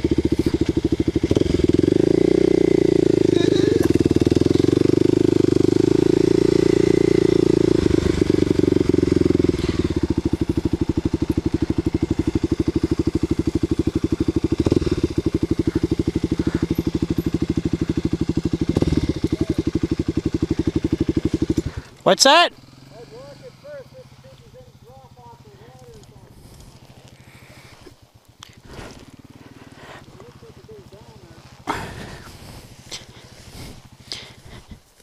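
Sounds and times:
motorcycle engine putter: 3.7 - 4.9, 7.8 - 22.1, 24.1 - 27.3.

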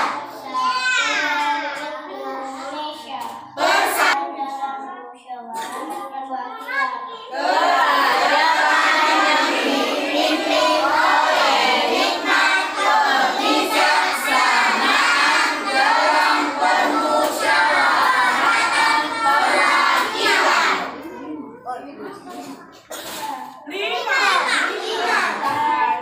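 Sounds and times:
children singing in unison: 0.0 - 2.8, 3.5 - 4.2, 7.3 - 21.1.

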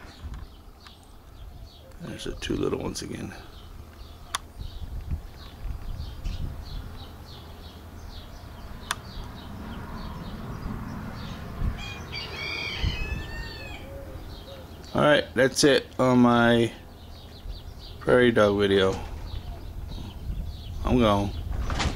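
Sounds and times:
low rumble on microphone: 0.0 - 12.2, 16.7 - 21.9.

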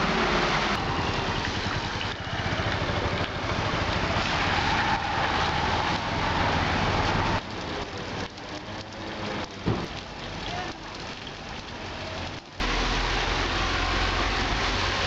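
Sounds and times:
motorcycle passing: 0.0 - 7.4
tyres hissing through water: 0.0 - 7.4
vehicle engines running: 0.0 - 15.0.

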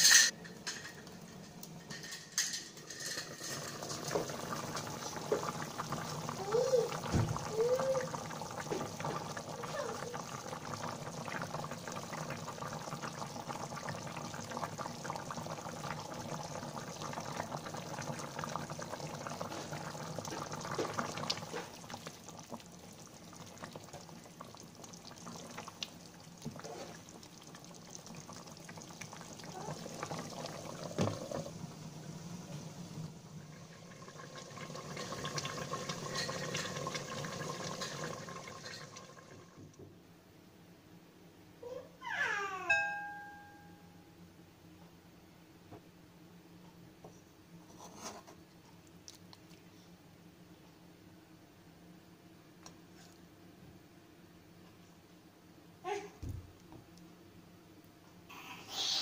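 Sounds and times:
curry bubbling in a pan: 3.5 - 39.7.

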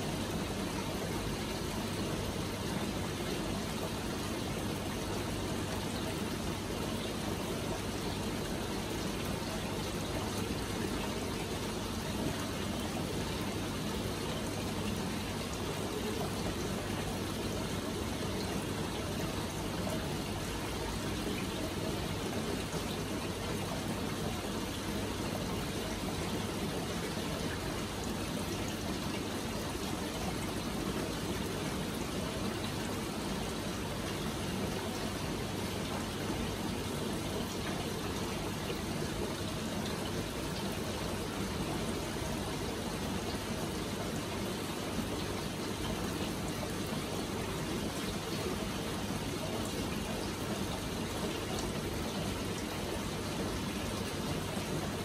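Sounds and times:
low pump hum: 0.0 - 55.0.

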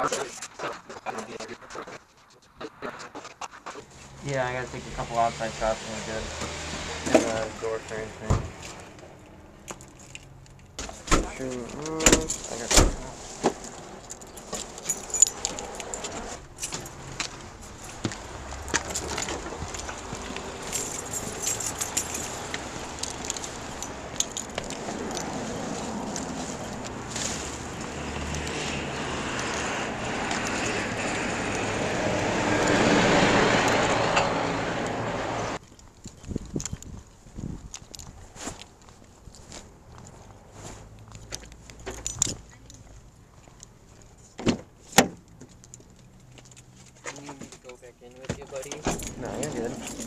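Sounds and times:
rustling: 9.8 - 28.7, 35.8 - 44.9
keys jangling: 14.0 - 16.9, 20.5 - 25.4, 41.4 - 42.9, 48.5 - 50.0.

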